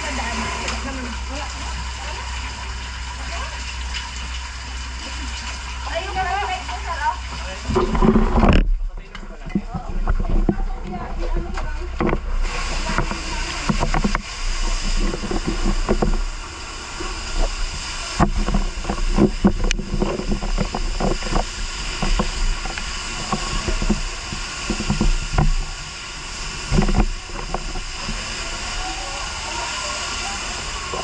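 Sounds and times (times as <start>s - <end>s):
fire hose spraying water: 0.0s - 31.0s
knocks and bumps on microphone: 7.7s - 16.3s, 18.2s - 25.8s.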